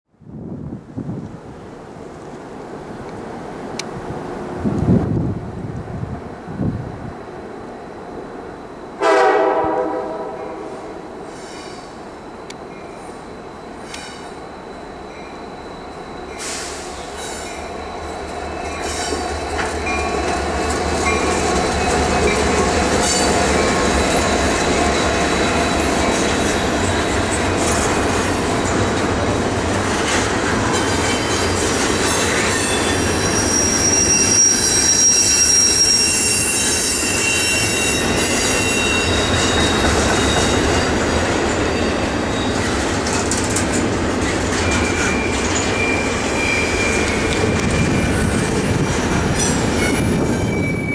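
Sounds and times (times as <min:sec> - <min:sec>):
freight train passing: 0:00.3 - 0:50.9
wheels clattering and squealing: 0:29.9 - 0:50.9.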